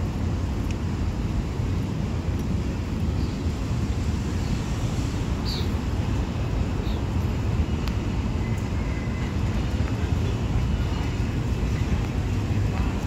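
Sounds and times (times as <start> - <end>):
subway train rumbling: 3.6 - 13.0.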